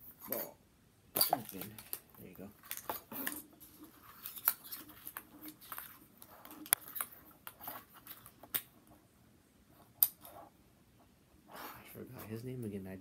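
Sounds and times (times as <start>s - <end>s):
foil wrappers crinkling: 1.4s - 8.7s.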